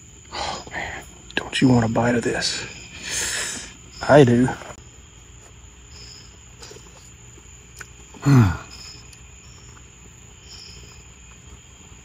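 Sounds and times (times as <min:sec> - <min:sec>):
crickets chirping: 0:00.0 - 0:12.0
man's short vocal sound: 0:08.2 - 0:08.7.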